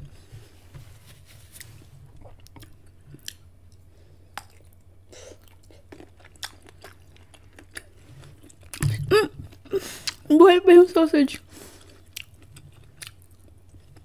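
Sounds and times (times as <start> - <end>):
low steady hum: 0.0 - 14.0
chewing and wet mouth sounds: 2.2 - 10.3, 11.4 - 14.0.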